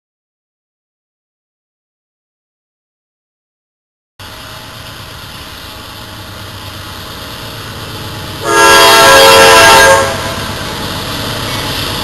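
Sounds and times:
locomotive horn chord: 8.4 - 10.6.

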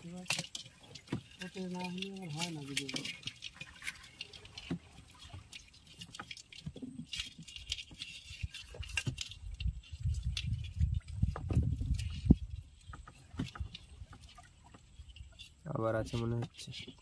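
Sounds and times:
light clicks taps and drips: 0.0 - 17.0
dull low thuds: 10.0 - 14.1.

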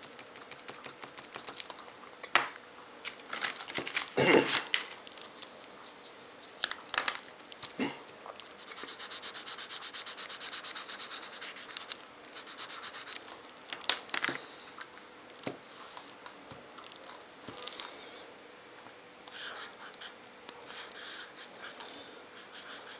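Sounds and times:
markers clicking and tapping: 0.0 - 2.5, 8.8 - 14.4
marker scribbling on paper: 8.6 - 13.2, 22.4 - 22.9.

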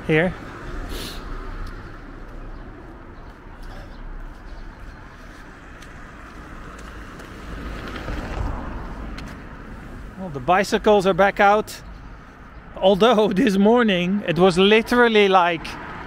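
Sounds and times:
vehicle passing: 0.0 - 12.7
road traffic: 0.0 - 16.0.

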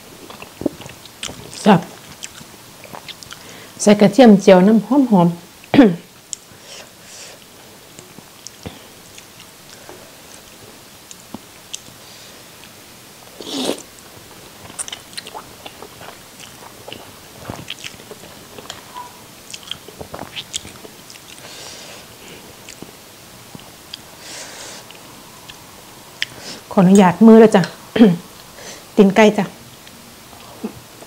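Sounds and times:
chewing with wet smacking: 0.2 - 3.4, 14.6 - 21.5
noodle slurp: 13.4 - 13.9.

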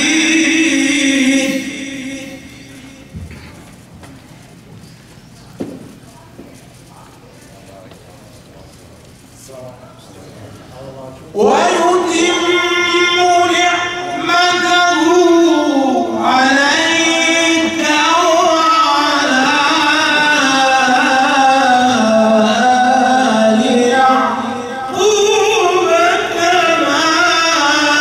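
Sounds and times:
man reciting melodically: 0.0 - 3.2, 10.8 - 28.0.

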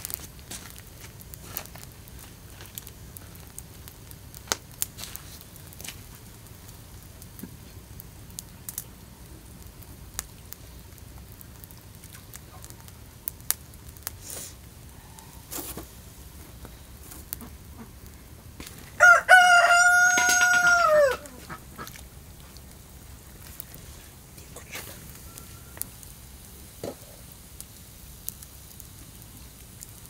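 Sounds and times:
rooster crowing: 18.9 - 21.6, 25.1 - 26.0.

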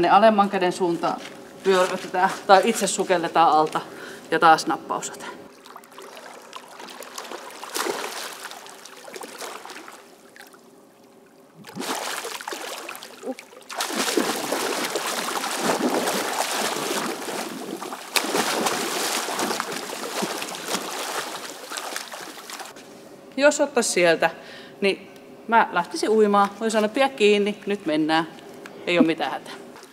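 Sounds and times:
pool water splashing: 5.4 - 22.8.

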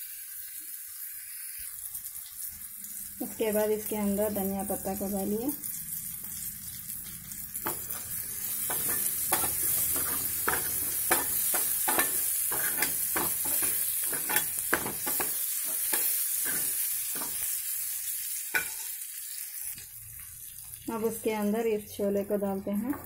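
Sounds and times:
vegetables sizzling in oil: 0.0 - 23.0
metal spoon scraping pan: 7.6 - 17.5, 18.5 - 18.9.

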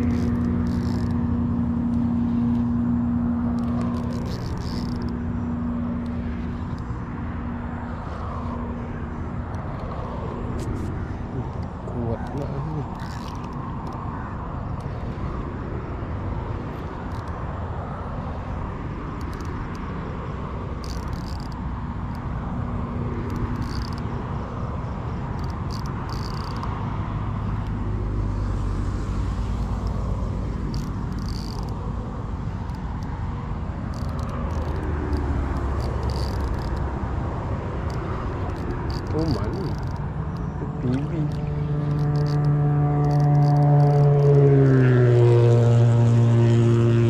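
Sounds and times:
fishing reel cranking: 0.0 - 8.6, 9.5 - 15.4, 16.4 - 44.6.

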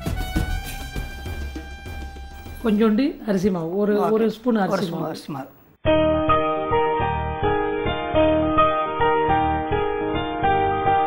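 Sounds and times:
keyboard melody of held notes: 5.9 - 11.0.

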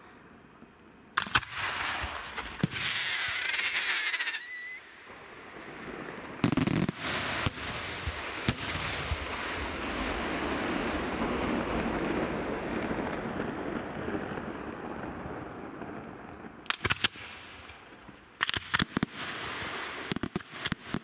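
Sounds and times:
firework whistle: 2.0 - 5.0.

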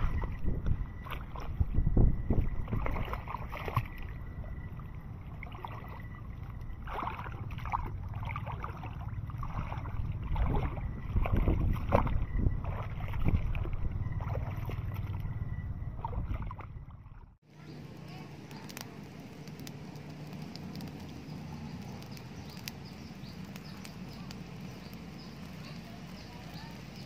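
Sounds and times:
faint steady high tone: 0.0 - 6.8
low rumbling on microphone: 0.0 - 18.8.

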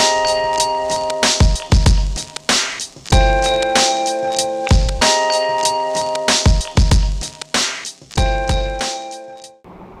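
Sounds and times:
synth chords: 0.0 - 9.6
kick drum: 1.4 - 2.2, 3.1 - 3.6, 4.7 - 5.0, 6.5 - 7.3, 8.2 - 8.8.

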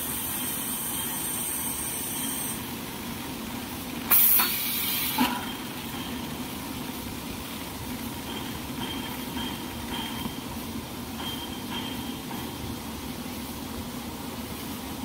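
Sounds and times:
loud hiss: 0.0 - 2.7, 4.0 - 5.4.

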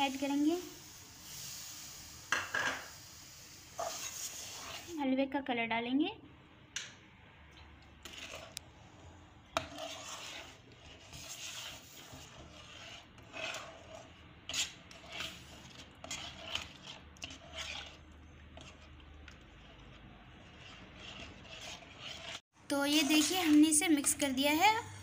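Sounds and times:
spatula scraping pan bottom: 3.8 - 4.9, 8.0 - 8.6, 9.6 - 22.4.

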